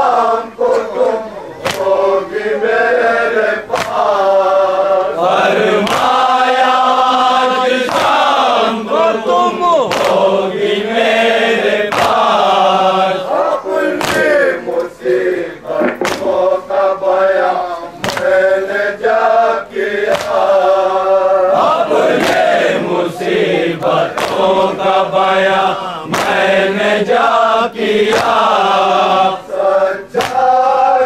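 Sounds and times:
men chanting: 0.0 - 31.0
hands slapping chests: 1.6 - 1.9, 3.7 - 4.1, 5.8 - 6.1, 7.9 - 8.2, 9.9 - 10.2, 11.9 - 12.2, 14.0 - 14.9, 15.7 - 16.6, 18.0 - 18.3, 20.1 - 20.5, 22.1 - 22.5, 23.8 - 24.6, 26.1 - 26.4, 28.1 - 28.4, 30.2 - 30.5.

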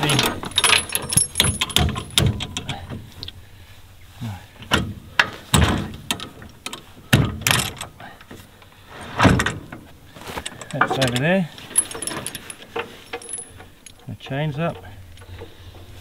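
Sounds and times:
chains clinking and rattling: 0.0 - 2.8, 10.4 - 13.7
sharp metal clanks: 0.0 - 2.8, 11.8 - 13.7.

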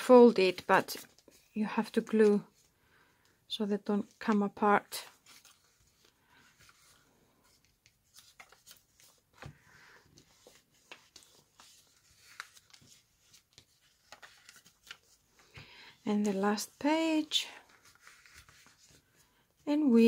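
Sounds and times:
paper rustling: 4.0 - 19.4.

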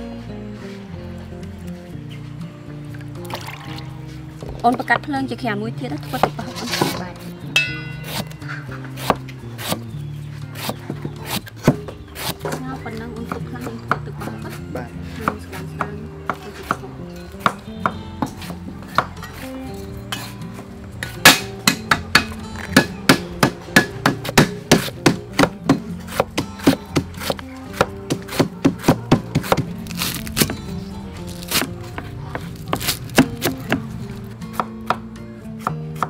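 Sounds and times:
background music: 0.0 - 36.0
cleaver chopping on wooden board: 8.0 - 9.8, 10.5 - 12.6, 21.3 - 30.6, 34.5 - 35.0.

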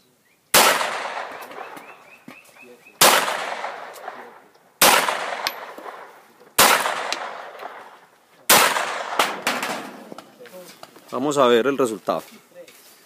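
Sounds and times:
pistol shots with echo: 0.5 - 2.0, 3.0 - 10.0.

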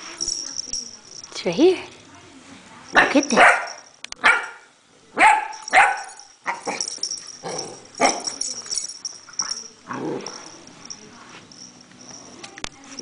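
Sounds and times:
puppy barking: 3.0 - 6.8.

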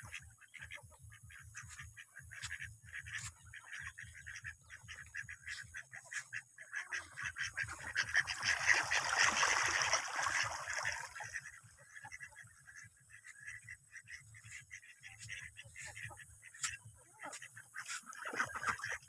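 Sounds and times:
ducks quacking: 0.0 - 19.0.

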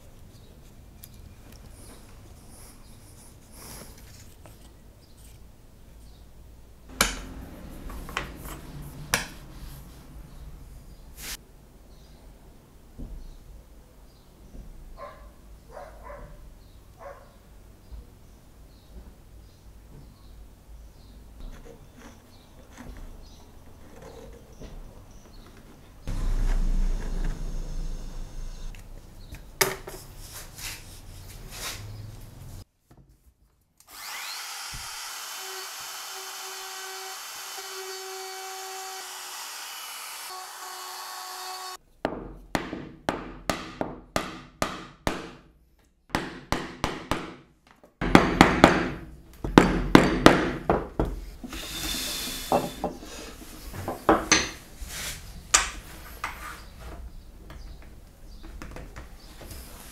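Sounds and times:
small power tool running: 26.1 - 28.8, 33.9 - 41.8.

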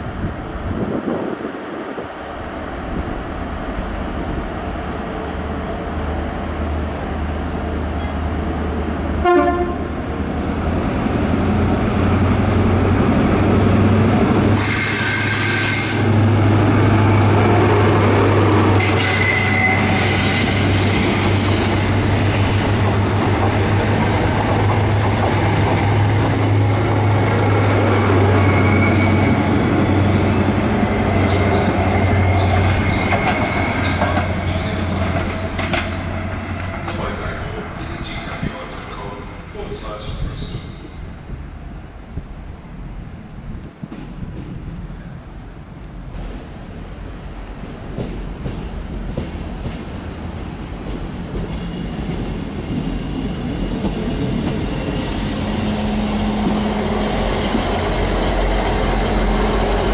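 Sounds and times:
train diesel engines running: 0.0 - 59.9
train horn note: 9.2 - 9.9.

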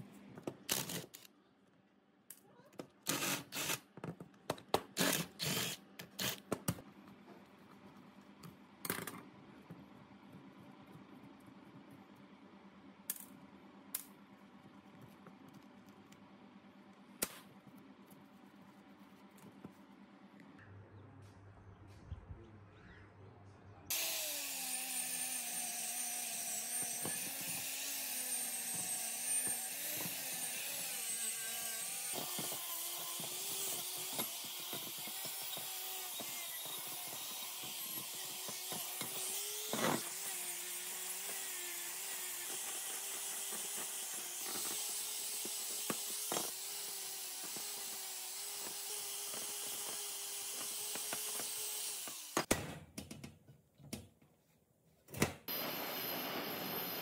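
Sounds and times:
power tool motor running: 3.1 - 3.8, 5.0 - 6.4, 23.9 - 52.4.

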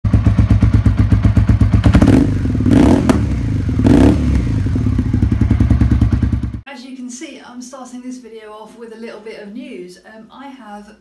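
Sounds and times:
motorcycle engine revving: 0.0 - 6.6.

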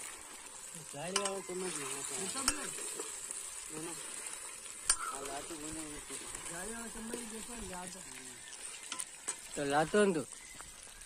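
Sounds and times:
fish sizzling in hot oil: 0.0 - 11.0
metal ladle clicking against pan: 1.1 - 1.5, 4.8 - 5.1.

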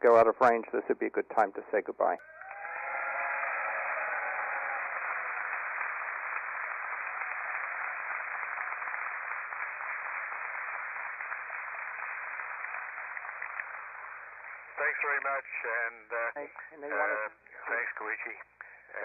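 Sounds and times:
radio static hiss: 14.3 - 19.0.

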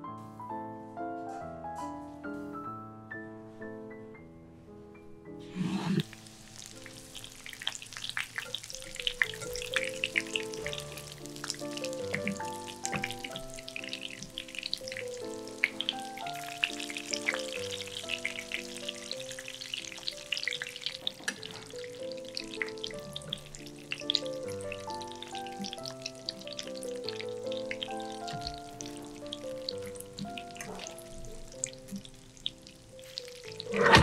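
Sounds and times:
light background music: 0.0 - 34.0
food sizzling in hot oil: 5.5 - 34.0.

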